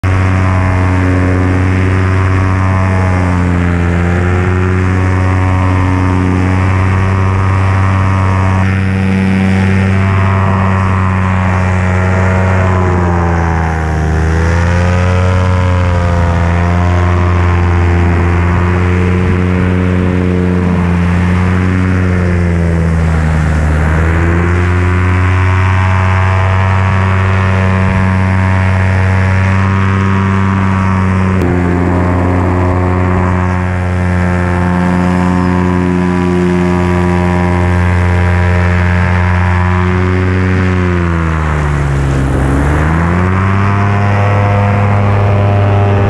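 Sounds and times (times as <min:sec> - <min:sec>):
off-road vehicle engine: 0:00.0 - 0:46.0.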